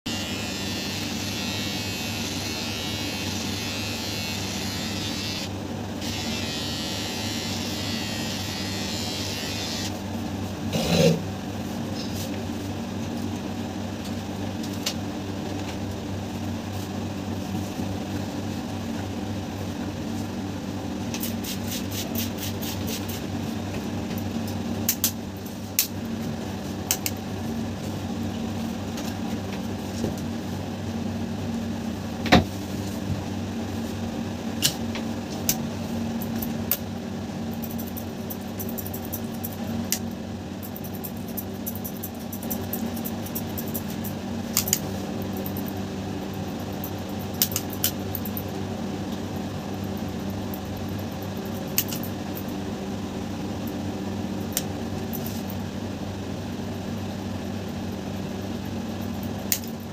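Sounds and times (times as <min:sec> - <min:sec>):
electric hair clipper buzzing: 0:00.1 - 0:10.0.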